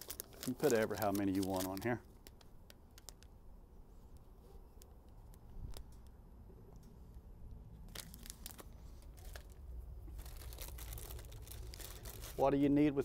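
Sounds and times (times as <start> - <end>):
wrapper crinkling and tearing: 0.0 - 3.3, 7.8 - 12.8.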